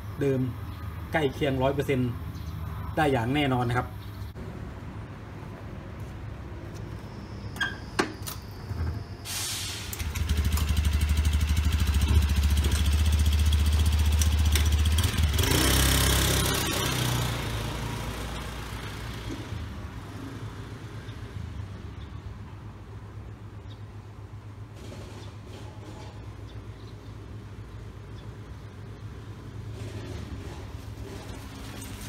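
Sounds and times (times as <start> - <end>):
scooter engine running: 10.0 - 19.3.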